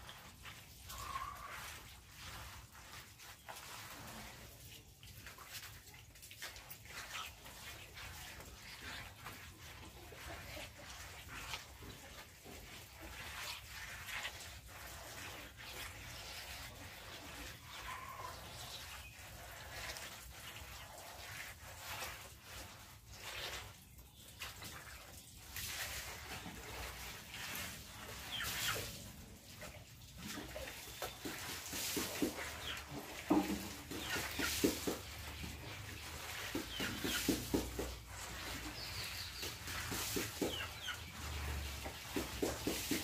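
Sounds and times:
small birds chirping: 16.0s - 20.1s, 27.9s - 29.0s, 30.3s - 43.0s
hand sloshing in bucket: 24.5s - 43.0s
chickens clucking: 28.1s - 29.4s, 30.2s - 43.0s.

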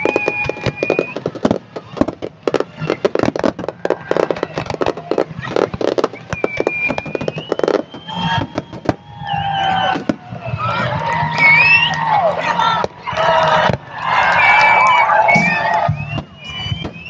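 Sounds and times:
high whistling tones: 0.0s - 1.4s, 6.0s - 10.6s, 11.3s - 12.1s, 14.2s - 17.0s
fireworks bursting: 0.0s - 11.9s, 12.7s - 17.0s
fireworks crackling: 0.0s - 17.0s.

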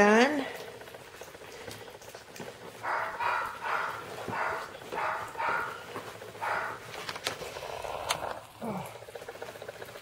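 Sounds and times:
puppies lapping: 0.4s - 10.0s
puppy whining: 2.8s - 6.9s.

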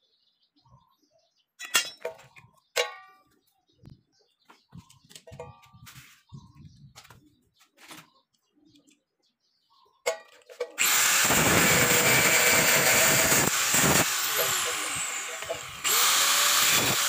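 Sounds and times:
angle grinder running: 10.8s - 17.0s.

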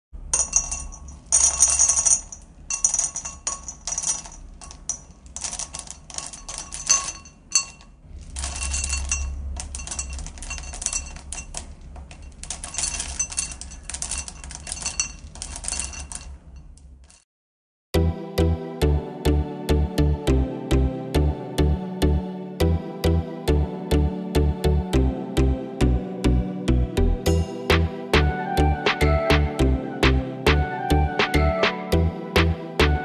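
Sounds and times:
chocolate chips clinking on glass: 0.4s - 16.8s.

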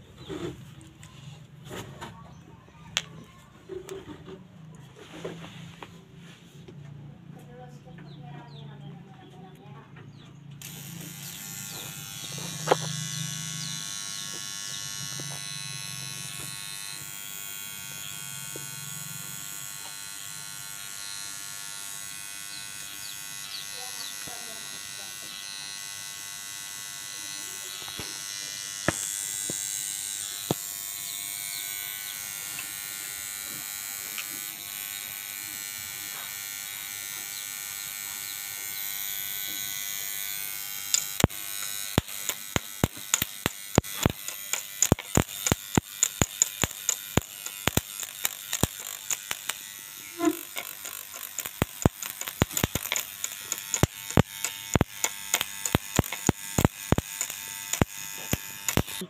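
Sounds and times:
welding sparks cracking: 10.6s - 16.8s, 27.2s - 31.6s, 38.6s - 59.0s
welder electrical buzz: 10.6s - 59.0s.

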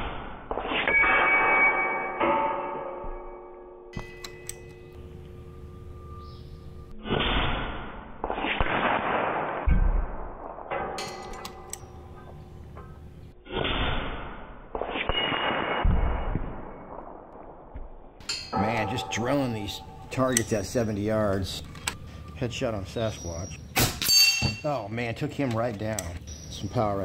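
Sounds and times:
air rifle shots: 7.2s - 10.5s
pellets clanging off steel targets: 10.7s - 12.0s, 18.2s - 21.6s, 23.8s - 24.9s.

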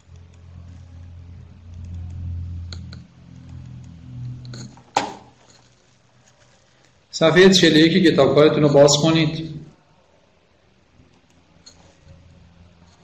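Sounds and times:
low hum: 0.0s - 5.5s.

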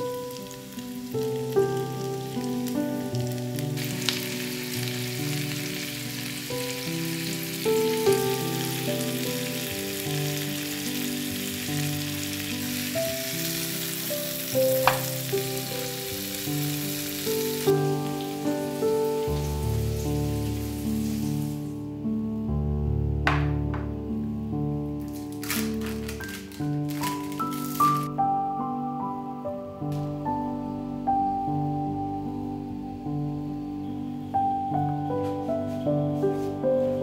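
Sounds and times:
food sizzling in oil: 0.0s - 21.8s, 25.0s - 28.1s
soft background music: 0.0s - 37.0s.

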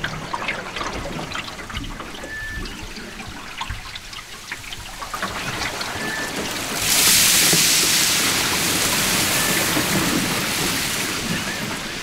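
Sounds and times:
shallow river water trickling: 0.0s - 12.0s
water drips and splashes: 0.0s - 12.0s.

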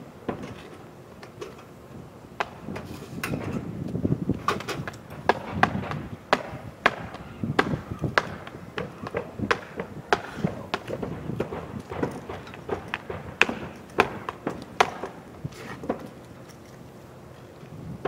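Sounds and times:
nails hammered into shingles: 4.8s - 16.1s.

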